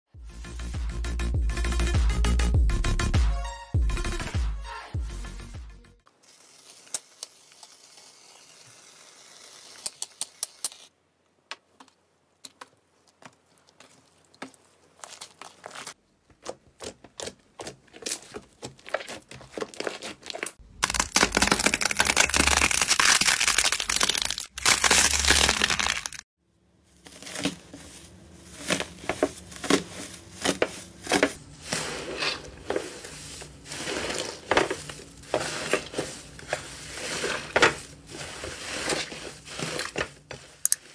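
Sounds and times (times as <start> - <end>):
aerosol foam hissing: 6.2 - 10.0
slime squeezed and kneaded: 19.7 - 26.2.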